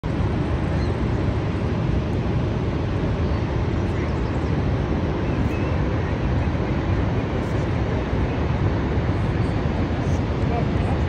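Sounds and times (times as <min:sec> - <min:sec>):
waterfall roaring: 0:00.0 - 0:11.0.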